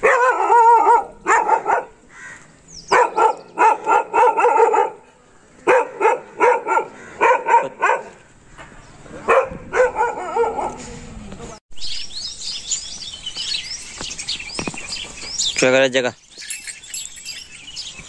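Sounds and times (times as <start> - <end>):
dog barking: 0.0 - 2.0, 2.9 - 8.2, 9.2 - 10.9.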